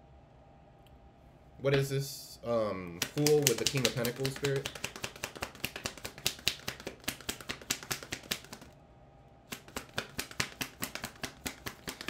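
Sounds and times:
cards being shuffled: 3.0s - 8.8s, 9.5s - 12.0s.

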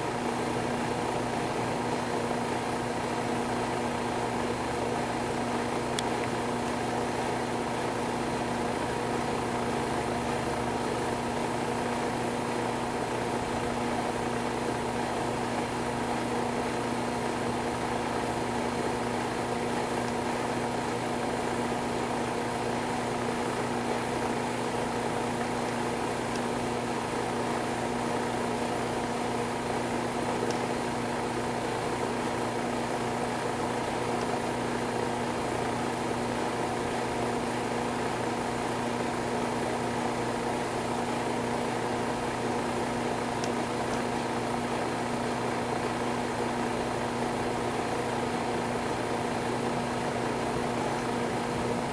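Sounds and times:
machine hum: 43.1s - 51.9s.

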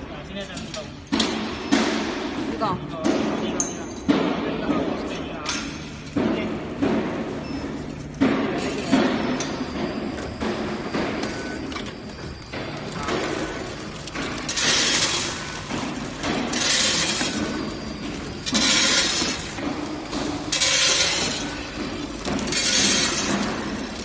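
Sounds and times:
packing machine running: 6.0s - 24.0s
dry beans pouring down chute: 18.4s - 24.0s.

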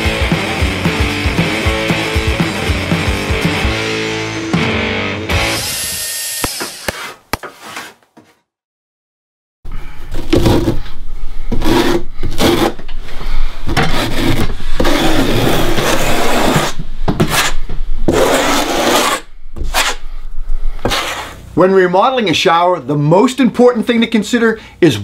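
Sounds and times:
trowel scraping mortar: 6.8s - 8.0s, 13.8s - 20.0s, 20.8s - 21.4s.

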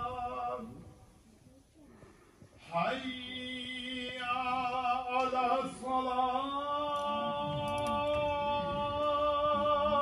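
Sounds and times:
man chanting: 2.7s - 10.0s.

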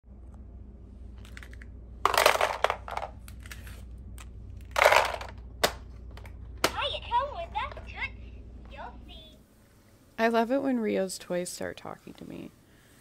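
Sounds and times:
plastic toys clattering: 1.2s - 3.7s, 4.6s - 6.8s.

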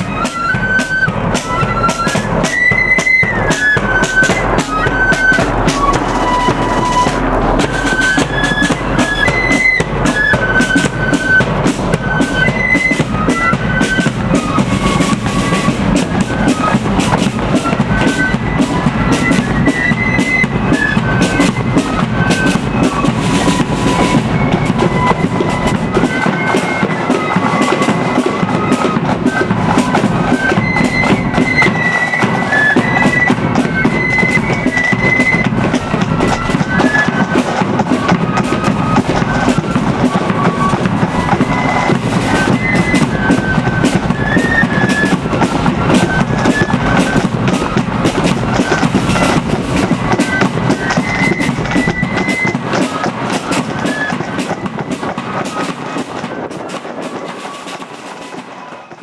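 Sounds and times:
flute band playing: 0.0s - 59.0s
snare drum: 0.0s - 59.0s.

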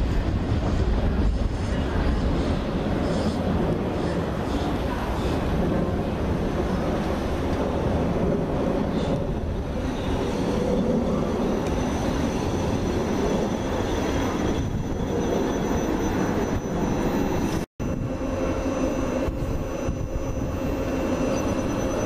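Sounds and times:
train wheels rumbling on rail: 0.0s - 22.0s
thin high whine: 8.8s - 22.0s.

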